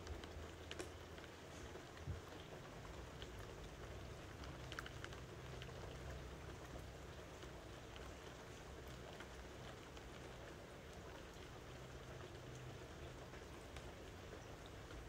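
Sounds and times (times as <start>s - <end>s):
raindrops ticking: 0.0s - 15.0s
steady rain: 0.0s - 15.0s.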